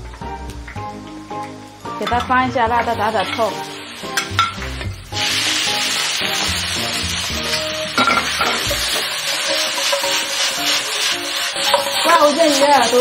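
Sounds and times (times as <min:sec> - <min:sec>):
potatoes sizzling in a wok: 0:00.0 - 0:13.0
spatula clanking against wok: 0:03.2 - 0:04.8, 0:07.4 - 0:13.0
metal spatula stirring: 0:07.3 - 0:13.0.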